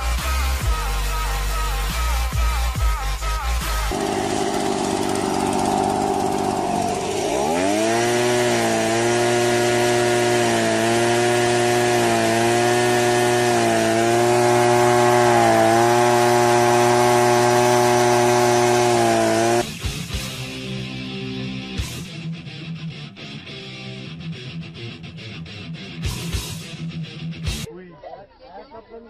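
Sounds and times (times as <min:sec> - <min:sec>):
leaf blower engine droning: 0:03.4 - 0:19.9.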